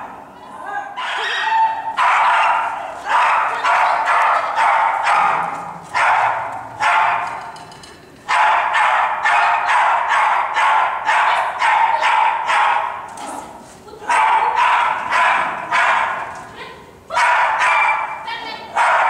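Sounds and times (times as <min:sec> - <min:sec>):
small dog barking: 0:01.0 - 0:07.4, 0:08.3 - 0:13.0, 0:14.1 - 0:16.3, 0:17.1 - 0:19.0.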